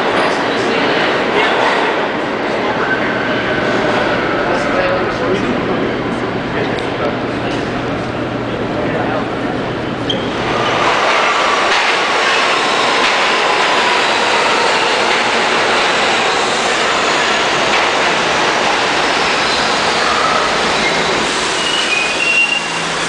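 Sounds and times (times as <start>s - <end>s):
subway train wheels rumbling: 0.0s - 23.0s
wheel squeal: 10.0s - 10.8s, 19.4s - 22.9s.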